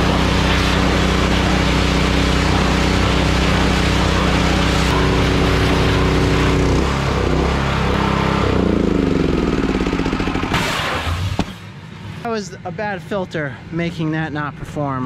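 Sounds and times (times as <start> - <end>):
water spraying from wand: 0.0 - 6.8
pressure washer engine running: 0.0 - 10.6.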